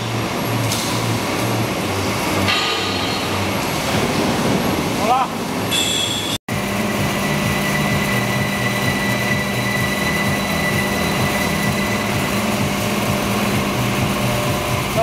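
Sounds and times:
faint high whine: 5.7 - 15.0
hydraulic drive humming: 5.7 - 15.0.

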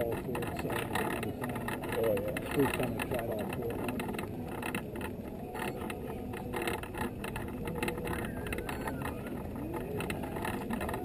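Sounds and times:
fast rattling ticks: 0.0 - 11.0
small vehicle rumbling: 0.0 - 11.0.

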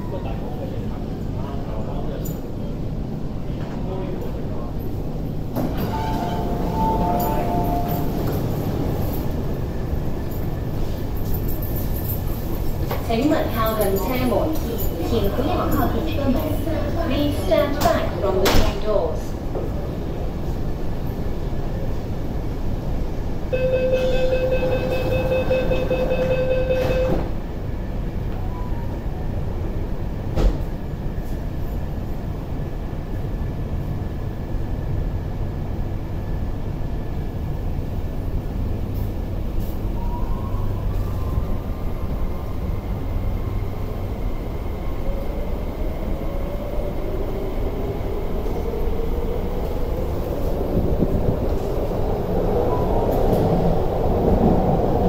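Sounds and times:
door-closing warning beeps: 23.6 - 27.3.

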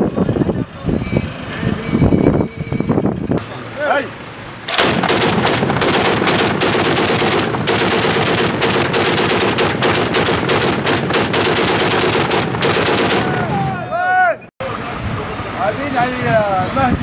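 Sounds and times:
machine gun automatic bursts: 4.7 - 13.4.

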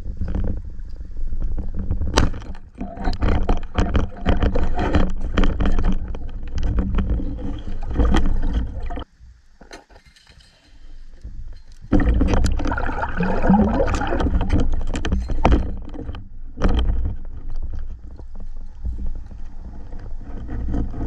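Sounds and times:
underwater crackling and clicking: 0.0 - 9.1, 11.2 - 21.0
muffled underwater rumble: 0.0 - 9.5, 11.2 - 21.0.

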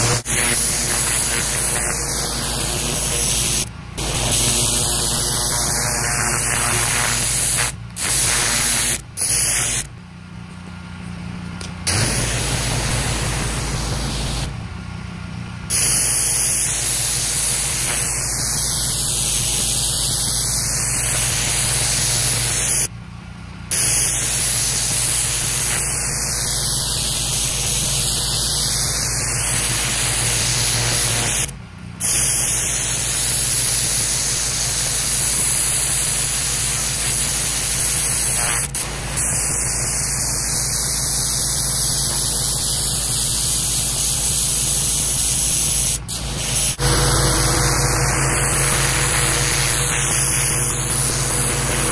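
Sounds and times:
pressure washer spray on concrete: 0.0 - 9.9, 11.7 - 14.6, 15.7 - 22.9, 23.7 - 51.9
low hum: 46.2 - 51.9.

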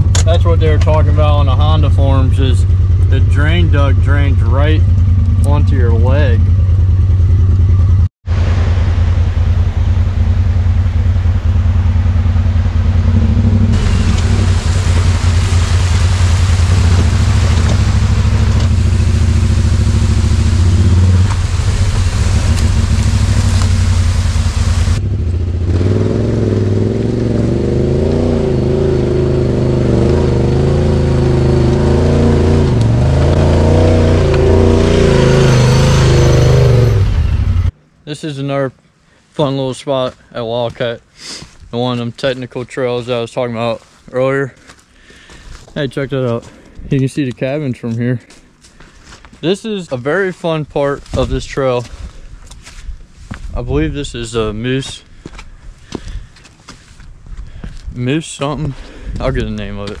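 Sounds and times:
off-road vehicle engine revving: 0.0 - 37.8
rushing noise: 8.2 - 25.1.

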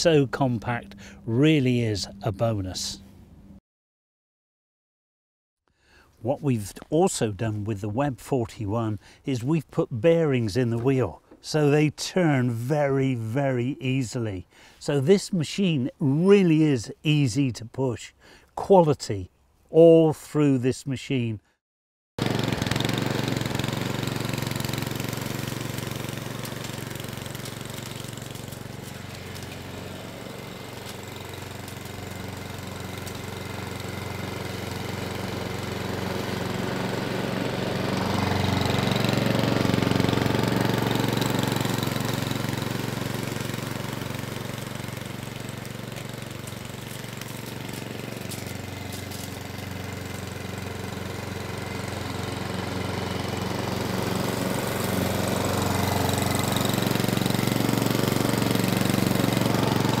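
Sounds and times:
lawn mower engine running: 0.0 - 3.5, 22.2 - 60.0.

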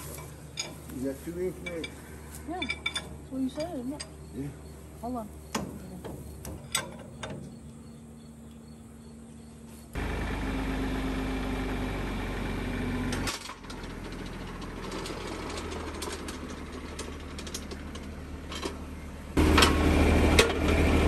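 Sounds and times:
tractor engine idling: 0.0 - 21.0.

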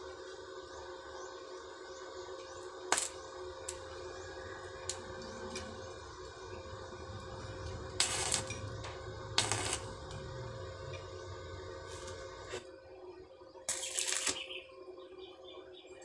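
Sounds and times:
faint steady hum: 0.0 - 16.0
arc welding bursts: 2.8 - 8.6, 9.2 - 10.2, 13.7 - 14.6.

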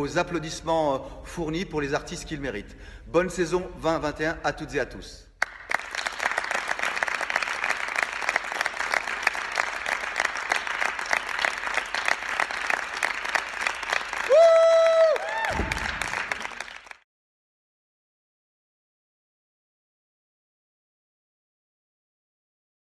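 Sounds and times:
small group clapping: 5.4 - 17.0
person whooping: 14.2 - 15.9.

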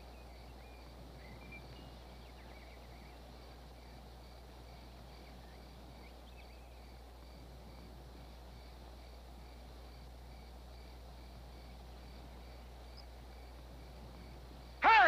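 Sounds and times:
birds chirping: 0.0 - 15.0
steady low hum: 0.0 - 15.0.

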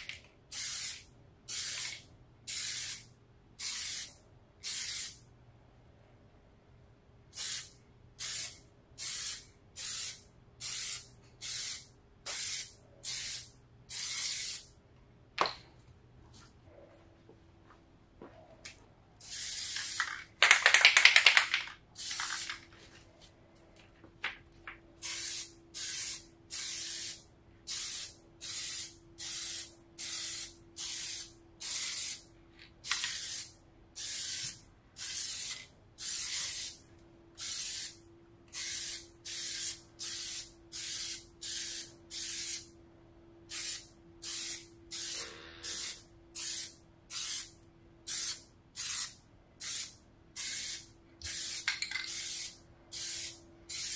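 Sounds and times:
faint steady hum: 21.6 - 53.8.

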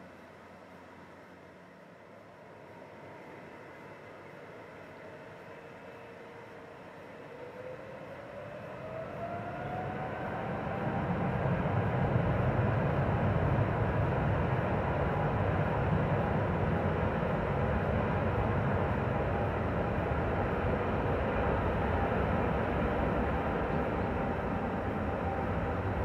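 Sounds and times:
jet engines spooling up roaring: 6.9 - 26.0.

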